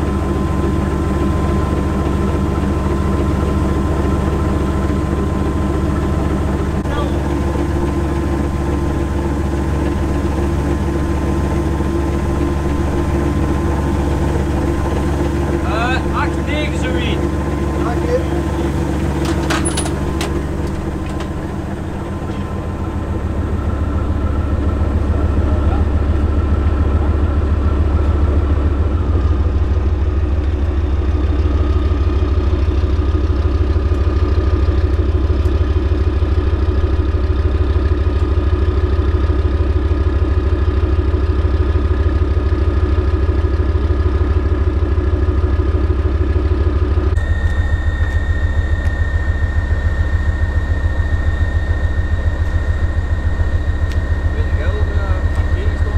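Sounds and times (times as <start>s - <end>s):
tank diesel engine running: 0.0s - 55.9s
faint high whine: 47.1s - 55.9s
thin steady high tone: 47.2s - 55.9s.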